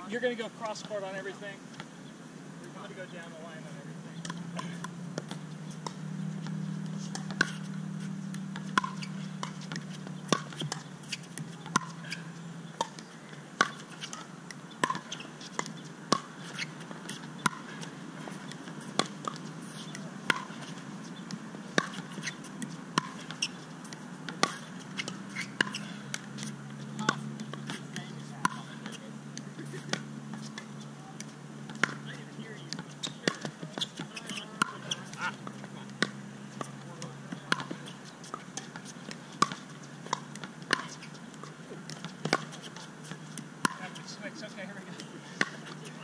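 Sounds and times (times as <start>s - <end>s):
ball bouncing on hard court: 4.1s - 46.0s
paddles striking plastic ball: 37.4s - 37.9s.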